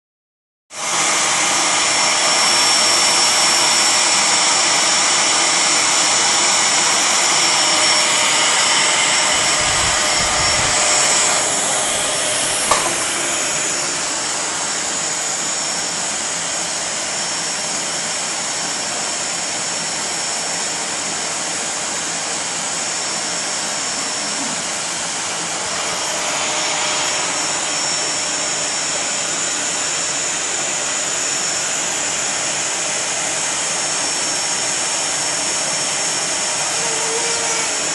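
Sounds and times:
vacuum cleaner running: 0.7s - 37.9s
brief knock: 12.7s - 13.1s.

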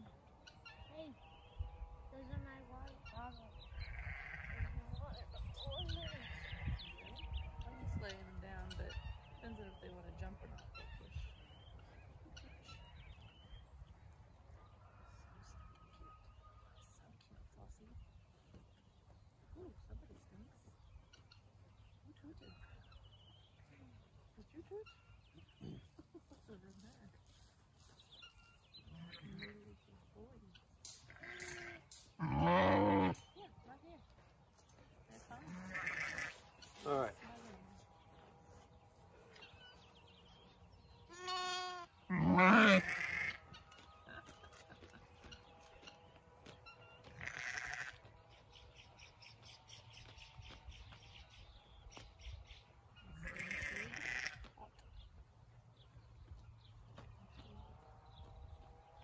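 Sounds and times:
sheep bleating: 3.8s - 4.7s, 31.1s - 33.2s, 35.5s - 36.4s, 41.1s - 43.4s, 47.1s - 48.0s, 53.1s - 54.4s.

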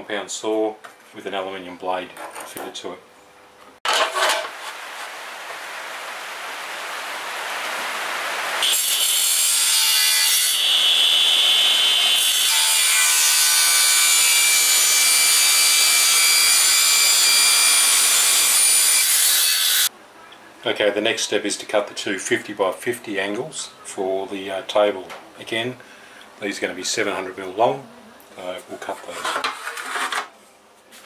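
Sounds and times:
mitre saw cutting metal: 8.6s - 19.9s.

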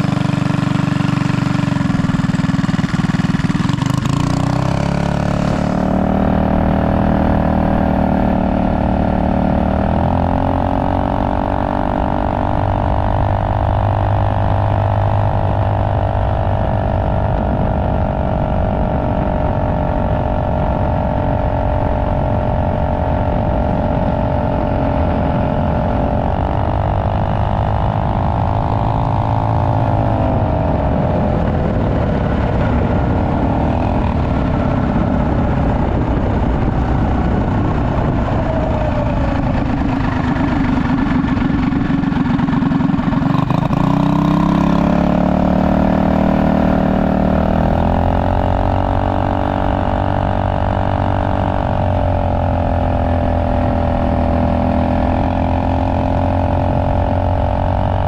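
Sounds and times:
minibike engine running: 0.0s - 58.0s.

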